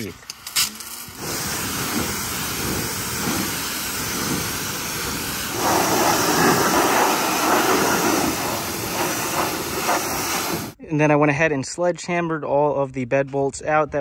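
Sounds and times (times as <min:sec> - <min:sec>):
pressure washer jet hissing: 0:00.0 - 0:10.8.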